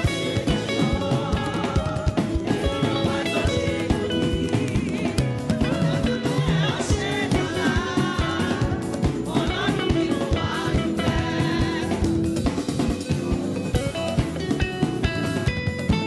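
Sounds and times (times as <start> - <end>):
women singing: 0.0 - 12.7
drum kit: 0.0 - 16.0
electric guitar: 0.0 - 16.0.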